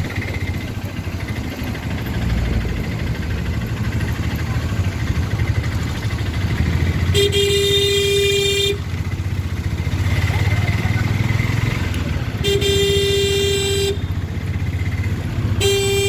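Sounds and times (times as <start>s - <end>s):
motor rickshaw engine rumble: 0.0s - 16.0s
vehicle horn blast: 6.9s - 9.0s, 12.4s - 14.3s, 15.5s - 16.0s.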